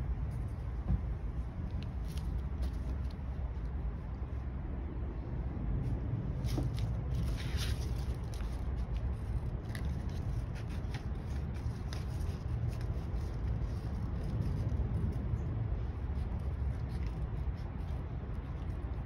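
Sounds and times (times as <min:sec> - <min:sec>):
steady low hum: 0:00.0 - 0:19.0
paper rustling: 0:01.8 - 0:03.7, 0:06.4 - 0:15.2, 0:16.1 - 0:19.0.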